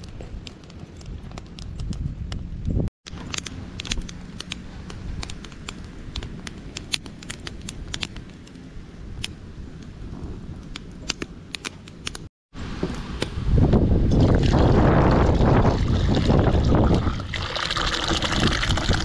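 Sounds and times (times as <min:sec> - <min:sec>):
wood fire crackling: 0:00.0 - 0:12.3.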